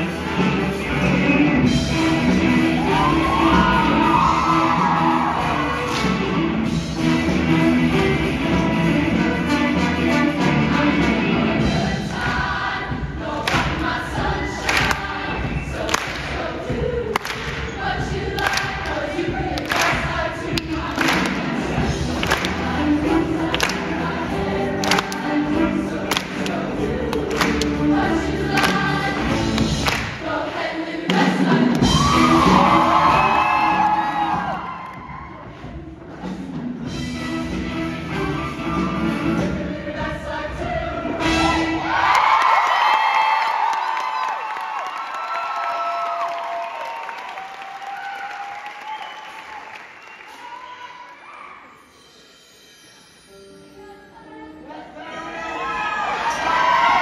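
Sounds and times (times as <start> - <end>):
live band playing: 0.0 - 12.0, 35.4 - 40.0
show choir singing with band: 0.0 - 44.6, 54.4 - 57.0.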